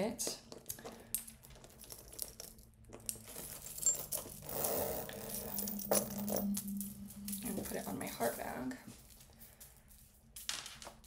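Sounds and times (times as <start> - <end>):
metal chain links clinking: 0.6 - 11.0.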